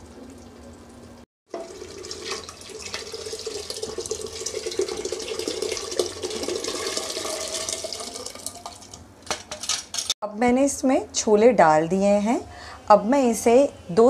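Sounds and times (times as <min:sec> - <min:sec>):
liquid pouring into a pot: 0:01.5 - 0:09.0.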